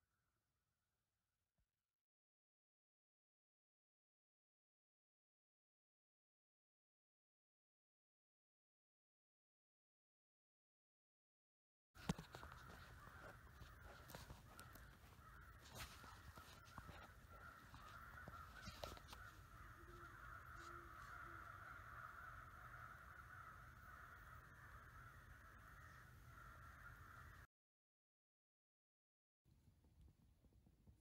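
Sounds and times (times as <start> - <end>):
faint clicks: 12.0 - 21.3
distant crows cawing: 12.0 - 27.5.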